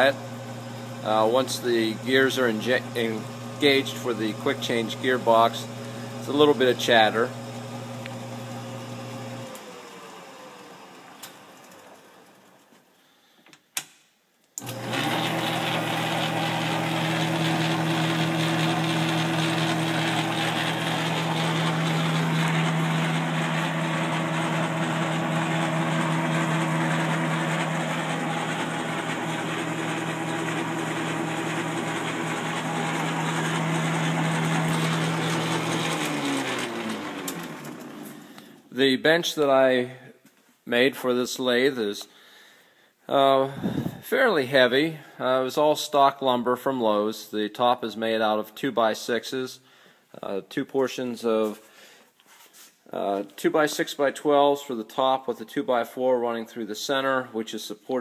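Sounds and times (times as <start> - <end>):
lathe motor running: 0.0 - 11.9, 14.6 - 38.2.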